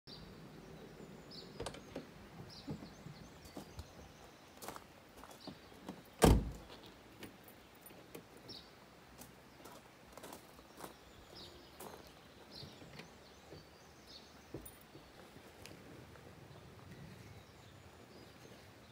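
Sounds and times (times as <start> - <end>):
loud thump: 6.2 - 6.6.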